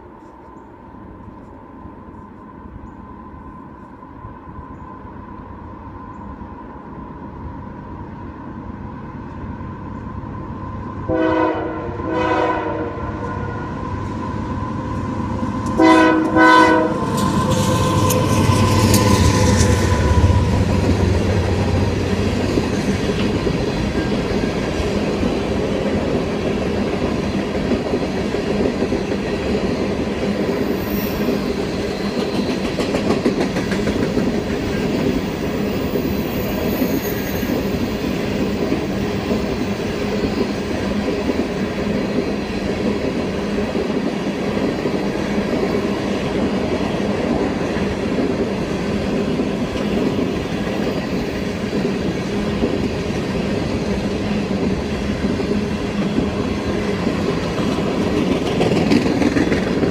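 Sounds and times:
locomotive horn blasts: 11.1 - 13.8, 15.8 - 17.6
train cars clickety-clack: 14.9 - 59.9.

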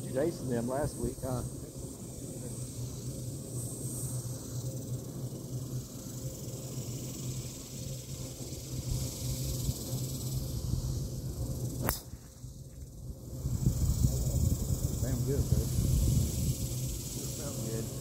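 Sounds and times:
steady high hiss: 0.0 - 18.0
wind rumble on microphone: 12.6 - 18.0.

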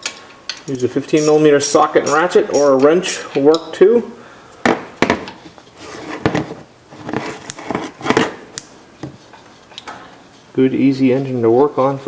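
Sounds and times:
ratchet clicking on bolt: 0.7 - 3.3.

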